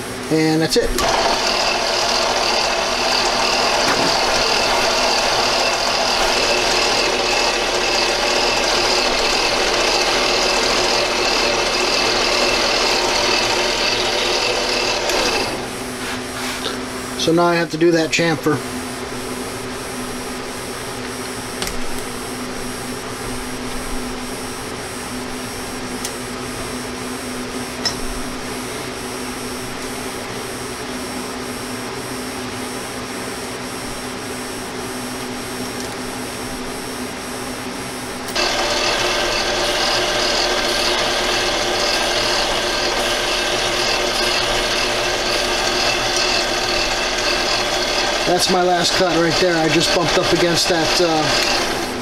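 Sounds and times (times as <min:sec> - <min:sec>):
lathe motor humming: 0:00.9 - 0:17.4, 0:34.6 - 0:52.0
lathe tool cutting metal: 0:01.0 - 0:15.8, 0:38.3 - 0:52.0.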